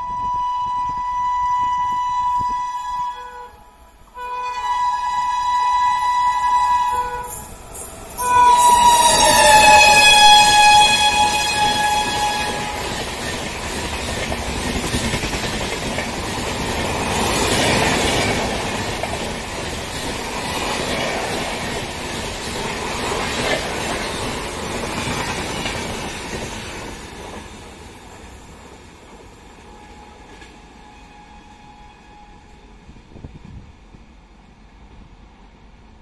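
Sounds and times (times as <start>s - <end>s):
train horn: 0.0s - 7.5s, 8.2s - 13.1s, 29.4s - 32.9s
train wheels rumbling on rails: 5.2s - 36.0s.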